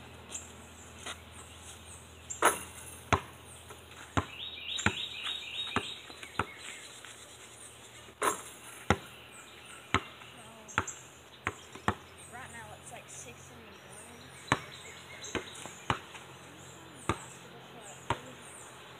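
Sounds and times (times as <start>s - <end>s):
birds chirping: 0.0s - 18.9s
basketball bouncing: 2.4s - 5.1s, 5.7s - 6.6s, 8.2s - 9.1s, 9.9s - 10.2s, 10.8s - 12.1s, 14.5s - 16.3s, 17.0s - 18.4s.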